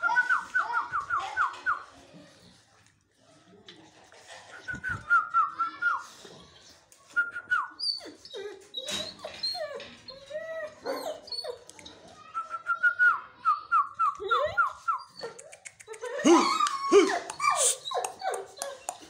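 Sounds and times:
dog whining: 7.8s - 11.7s, 14.2s - 19.0s.

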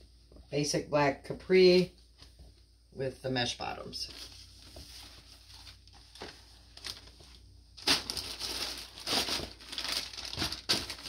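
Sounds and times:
plastic bag crinkling: 5.3s - 11.0s.

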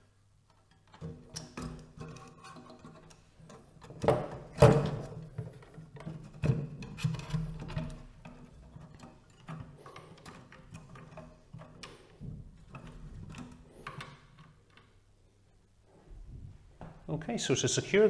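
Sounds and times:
plastic fan handled against metal: 0.7s - 14.9s.

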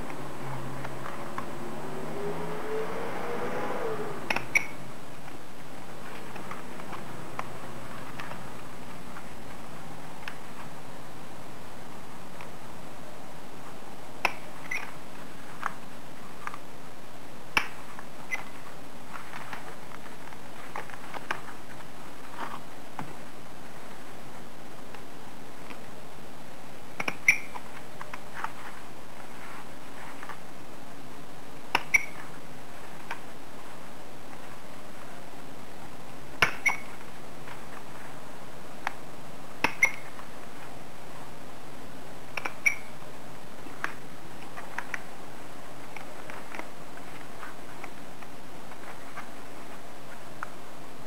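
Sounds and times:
paper rustling: 17.8s - 26.0s, 27.5s - 30.6s, 43.4s - 50.6s.

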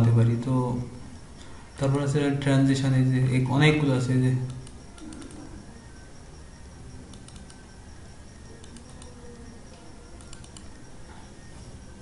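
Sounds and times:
computer mouse clicking: 4.4s - 5.5s, 7.1s - 7.6s, 8.6s - 10.7s.

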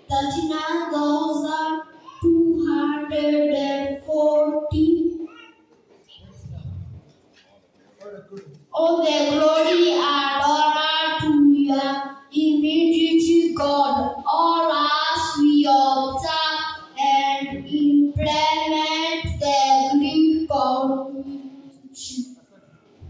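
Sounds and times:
children singing together: 8.8s - 12.0s, 12.8s - 20.8s.

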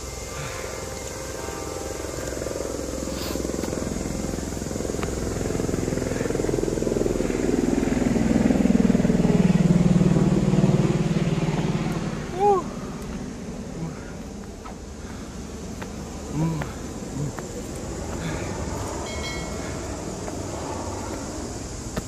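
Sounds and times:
motor engine passing by: 0.1s - 22.0s.

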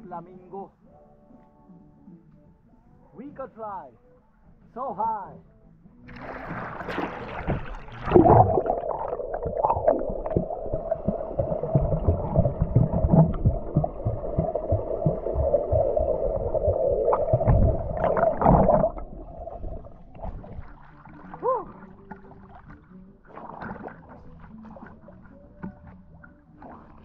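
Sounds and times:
swimmer exhaling bubbles underwater: 6.1s - 21.9s
splash going underwater: 6.1s - 25.3s
underwater gurgling and bubbling: 6.1s - 25.3s.

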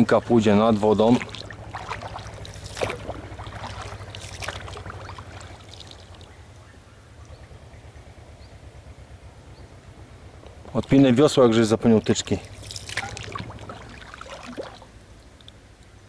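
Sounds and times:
water splashes: 0.0s - 6.6s, 10.6s - 15.5s
low steady hum: 0.0s - 16.0s.

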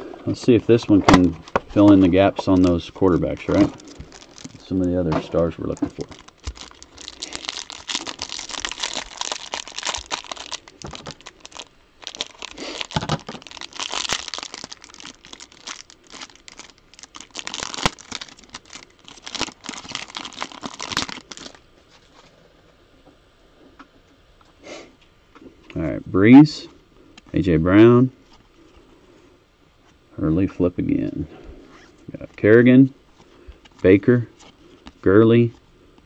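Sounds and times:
plastic wrapping tearing and crinkling: 1.1s - 22.2s.

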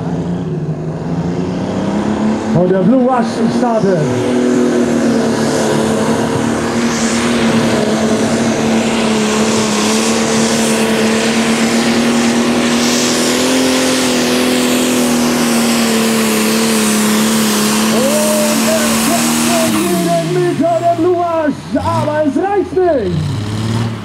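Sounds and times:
diesel tractor engine at full power: 0.0s - 24.0s.

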